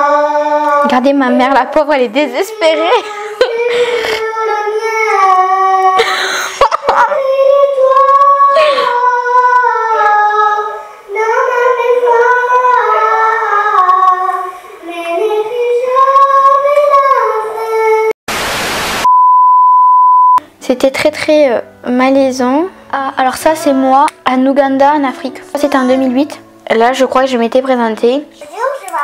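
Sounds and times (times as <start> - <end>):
girl singing pop song: 0.0 - 18.2, 23.0 - 26.6, 28.4 - 29.0
hiss burst: 18.3 - 19.1.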